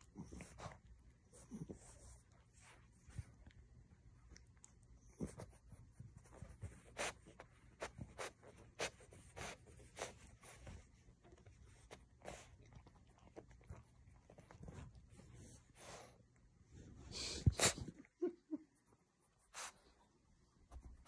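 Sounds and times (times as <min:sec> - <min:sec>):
dog sniffing into a blanket: 0:00.1 - 0:03.4, 0:05.2 - 0:12.7, 0:14.3 - 0:18.0, 0:19.4 - 0:20.0.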